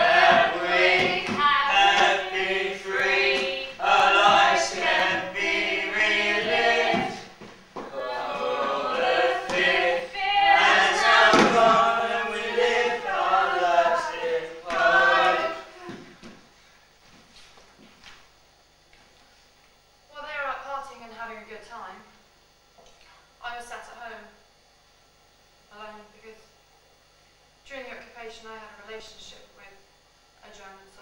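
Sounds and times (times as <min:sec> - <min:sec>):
choir singing: 0:00.0 - 0:15.9.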